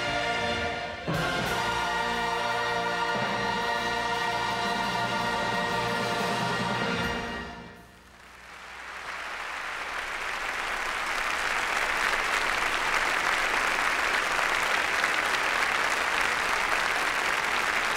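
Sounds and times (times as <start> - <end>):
audience applauding: 8.0 - 17.9.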